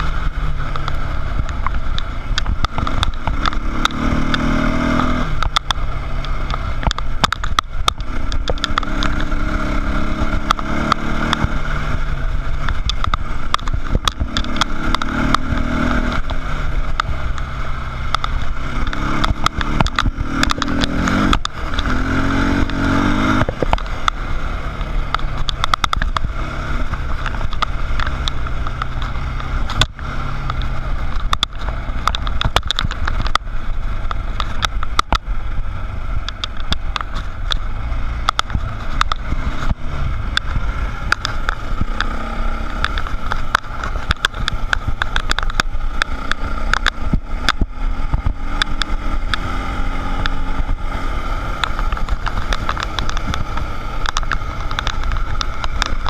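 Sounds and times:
dirt bike engine revving: 0:00.0 - 0:56.0
heavy low rumble: 0:00.0 - 0:56.0
clicks and knocks from gravel: 0:51.2 - 0:56.0.

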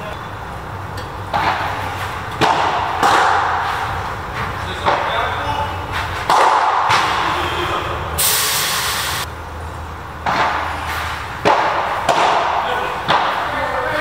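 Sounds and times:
paddle hitting ball: 0:01.3 - 0:03.8, 0:04.4 - 0:05.1, 0:06.2 - 0:07.4, 0:11.4 - 0:13.6
hiss: 0:08.2 - 0:09.3.

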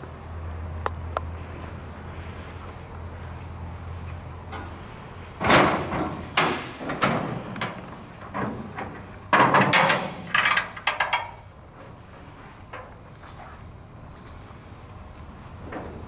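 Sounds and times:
truck hood clunks and knocks: 0:05.4 - 0:11.3.

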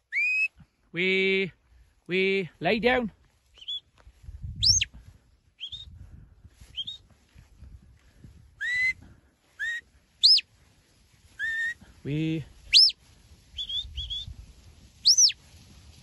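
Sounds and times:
shepherd's whistles: 0:00.0 - 0:00.5, 0:03.6 - 0:03.9, 0:04.6 - 0:04.9, 0:05.6 - 0:06.0, 0:06.7 - 0:07.1, 0:08.6 - 0:09.0, 0:09.6 - 0:10.4, 0:11.4 - 0:11.8, 0:12.7 - 0:13.0, 0:13.6 - 0:14.3, 0:15.0 - 0:15.4.

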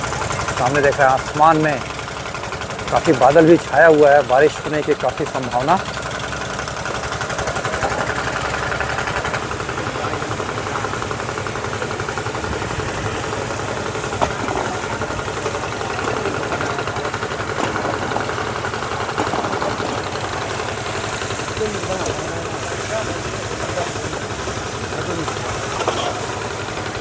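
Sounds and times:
water pump engine knocking: 0:00.0 - 0:27.0.

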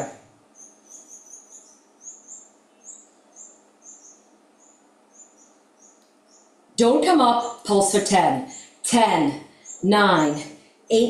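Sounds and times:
small animal chirping: 0:00.5 - 0:06.5.

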